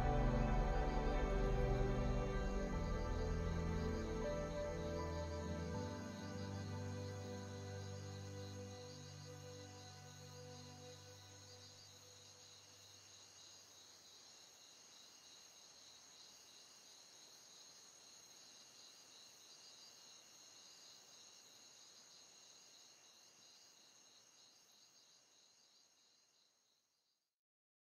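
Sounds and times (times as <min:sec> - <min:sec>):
low music notes: 0:00.0 - 0:10.7.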